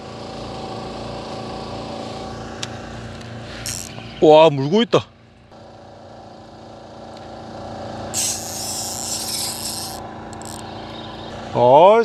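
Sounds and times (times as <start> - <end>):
boat machinery hum: 0.0 - 12.0
fishing reel whirring: 3.5 - 4.0, 8.1 - 11.3.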